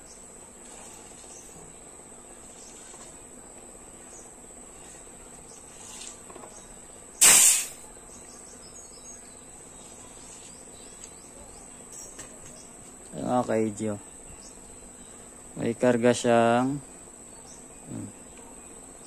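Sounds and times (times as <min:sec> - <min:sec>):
compressed air hiss: 0:07.2 - 0:07.8.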